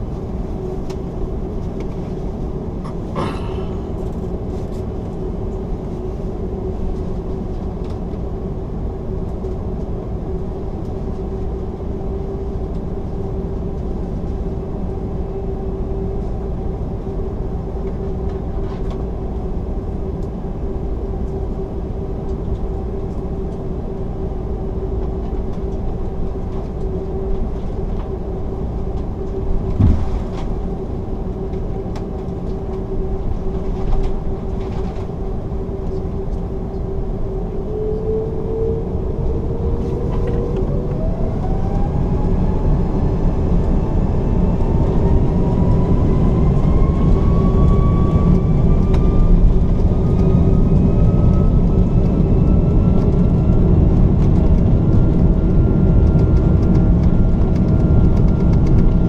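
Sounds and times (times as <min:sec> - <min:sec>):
jet engines droning: 0:00.0 - 0:59.0
thump: 0:29.8 - 0:30.2.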